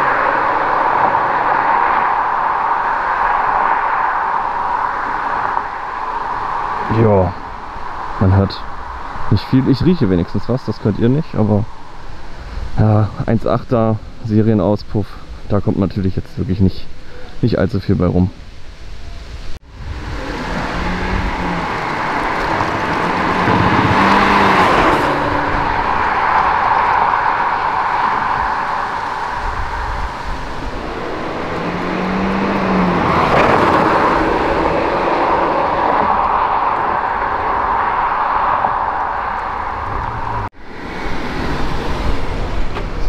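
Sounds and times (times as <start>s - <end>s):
car engine revving: 0.0s - 11.1s, 19.6s - 42.8s
steady rushing noise: 0.0s - 43.0s.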